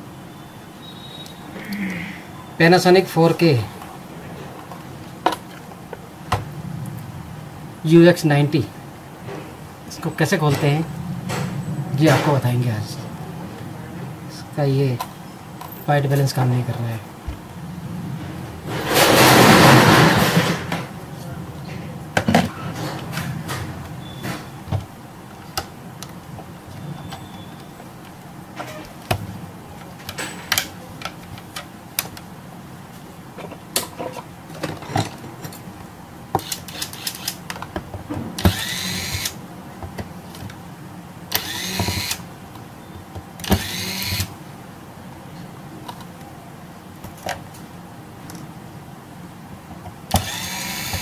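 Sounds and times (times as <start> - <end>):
short noisy bursts: 18.7 - 20.8, 41.3 - 42.2, 43.4 - 44.3, 50.2 - 51.0.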